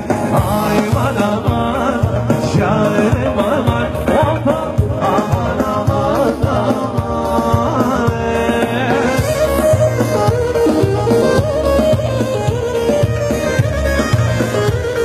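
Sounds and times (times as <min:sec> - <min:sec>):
man singing into microphone: 0:00.0 - 0:10.1
electronic keyboards: 0:00.0 - 0:15.0
steady drum beat: 0:00.0 - 0:15.0.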